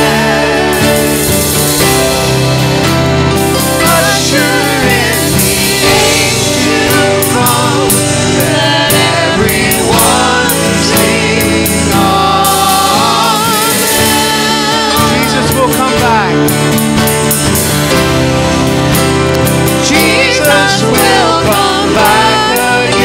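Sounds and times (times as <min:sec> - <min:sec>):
woman and man singing: 0:00.0 - 0:01.6, 0:03.5 - 0:16.3, 0:19.7 - 0:23.0
electric bass: 0:00.0 - 0:23.0
strummed acoustic guitar: 0:00.0 - 0:23.0.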